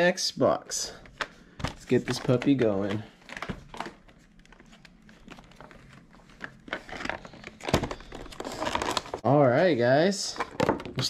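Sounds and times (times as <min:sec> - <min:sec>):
packaging crinkling and rustling: 0:01.1 - 0:09.3.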